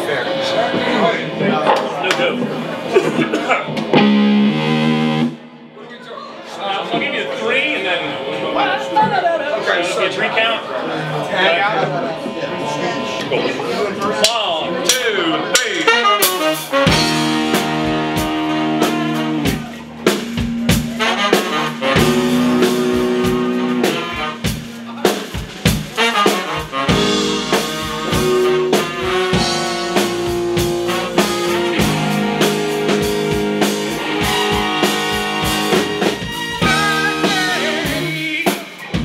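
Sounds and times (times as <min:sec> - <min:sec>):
drums: 0:00.0 - 0:05.8, 0:14.2 - 0:39.0
electric bass: 0:03.7 - 0:05.7, 0:14.8 - 0:39.0
horn section playing a riff: 0:04.0 - 0:05.4, 0:14.8 - 0:25.2, 0:25.9 - 0:38.3.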